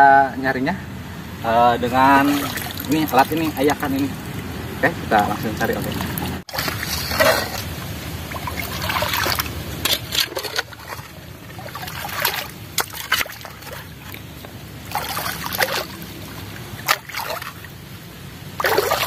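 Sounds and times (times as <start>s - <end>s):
water splashing and sloshing: 1.3s - 19.0s
ditch water running: 1.8s - 19.0s
hoe scraping mud: 5.4s - 17.6s.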